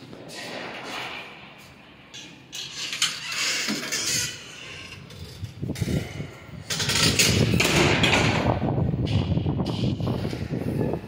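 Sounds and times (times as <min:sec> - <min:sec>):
wind buffeting microphone: 0:05.0 - 0:11.0.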